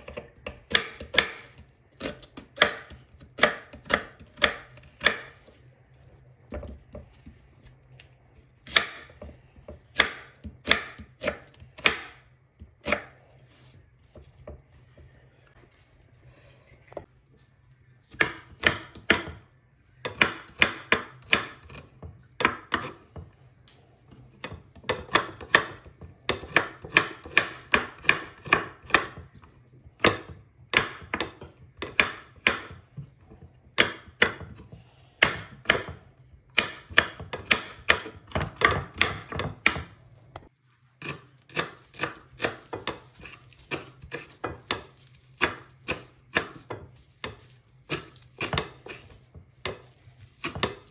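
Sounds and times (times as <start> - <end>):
knife chopping on wooden board: 0.0 - 5.5, 8.6 - 12.2, 24.4 - 29.2, 33.8 - 39.9, 41.0 - 50.9.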